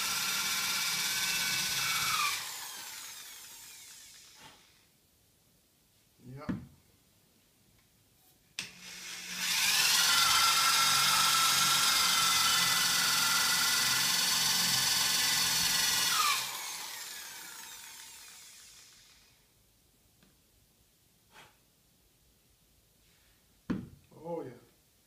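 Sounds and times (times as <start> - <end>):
electric drill whining: 0.0 - 4.9, 8.6 - 19.4.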